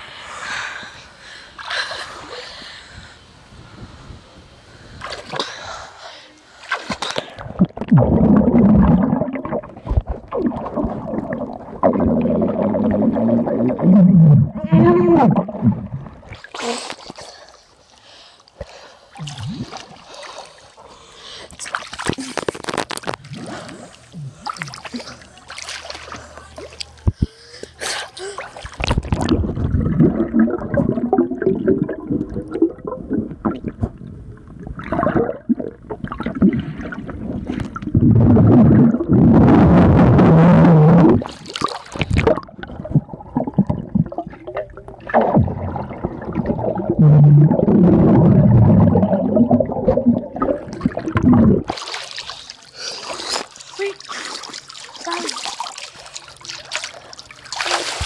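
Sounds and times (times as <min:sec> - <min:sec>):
underwater gurgling and bubbling: 0:07.4 - 0:16.5, 0:28.8 - 0:51.8
water splashing: 0:18.7 - 0:27.4, 0:28.1 - 0:33.8, 0:41.2 - 0:58.0.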